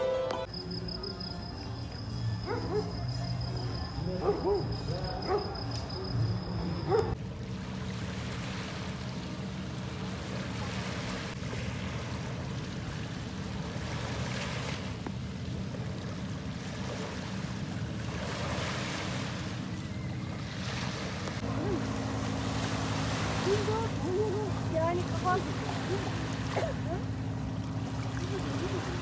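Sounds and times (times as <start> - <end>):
low steady hum: 0.0 - 29.0
small waves washing on shore: 7.2 - 29.0.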